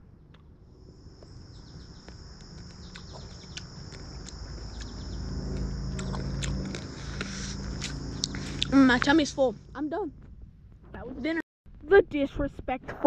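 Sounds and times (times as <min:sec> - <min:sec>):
low hum: 0:00.0 - 0:11.9
insects trilling: 0:00.7 - 0:10.0
insect chewing clicks: 0:01.6 - 0:09.1.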